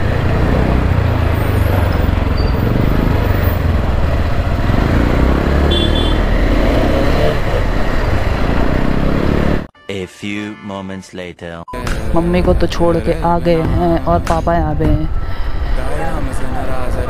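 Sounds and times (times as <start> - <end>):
motorcycle engine rumble: 0.0 - 9.7
road and wind noise: 0.0 - 9.7, 12.0 - 17.0.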